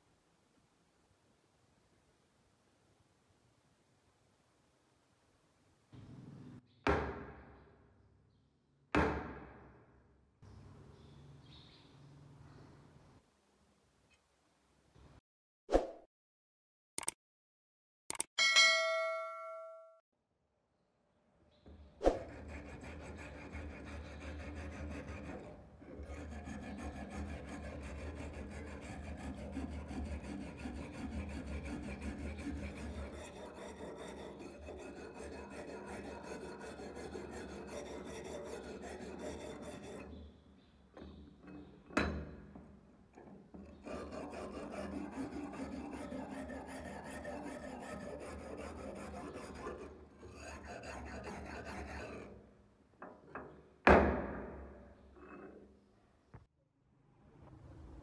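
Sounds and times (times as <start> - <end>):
knock: 6.9 - 7.5, 9.0 - 9.7, 53.9 - 54.6
chime: 18.4 - 20.0
wire brush scrubbing rust: 22.2 - 40.2, 43.6 - 52.3.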